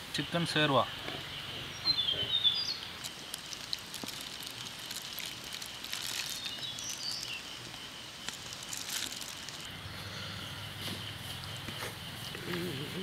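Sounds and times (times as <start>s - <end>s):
high insect drone: 0.1s - 13.0s
bird chirps: 0.9s - 3.0s, 5.9s - 9.0s
plastic bag crackling: 3.0s - 9.7s.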